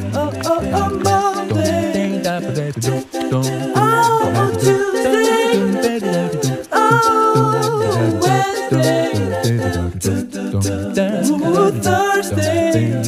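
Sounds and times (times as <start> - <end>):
low bass notes: 0.0 - 4.8
song with sung vocals: 0.0 - 13.0
steady beat: 0.0 - 13.0.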